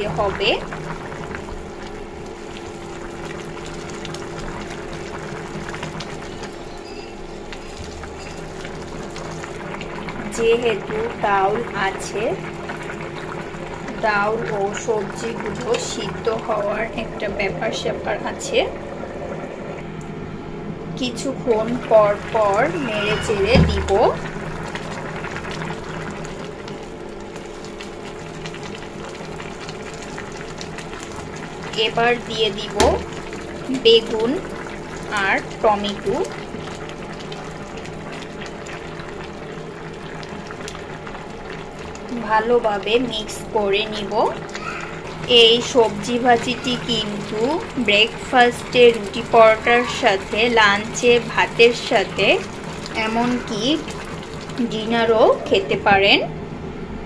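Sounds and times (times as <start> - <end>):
low hum: 0.0 - 28.2
steady low hum: 0.0 - 57.0
water boiling and bubbling: 0.0 - 57.0.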